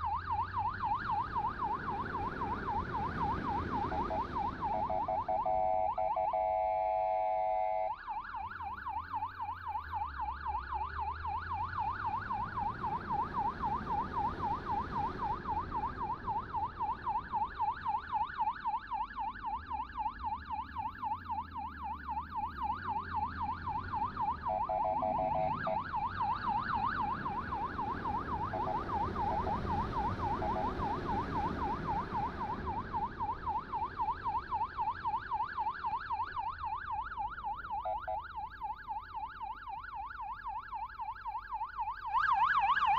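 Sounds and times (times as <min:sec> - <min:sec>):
electronic siren yelping: 0:00.0 - 0:42.9
road rumble: 0:00.0 - 0:42.9.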